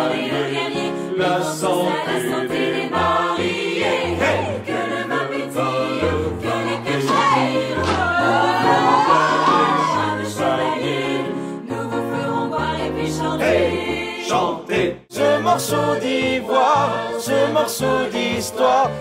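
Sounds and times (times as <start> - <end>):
ensemble singing: 0.0 - 11.2
piano accompaniment: 0.0 - 19.0.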